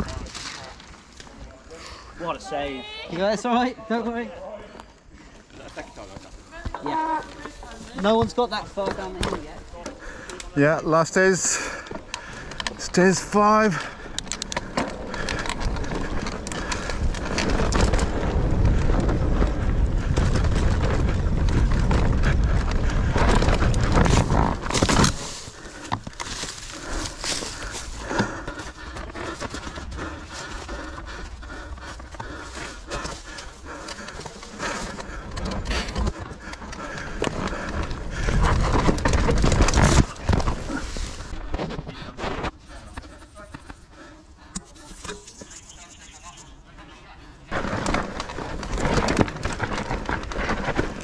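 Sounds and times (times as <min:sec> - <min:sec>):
bike tyres and chain rattling: 0:06.8 - 0:41.4, 0:47.5 - 0:51.0
rumble of speed and wind: 0:13.9 - 0:43.0, 0:47.6 - 0:51.0.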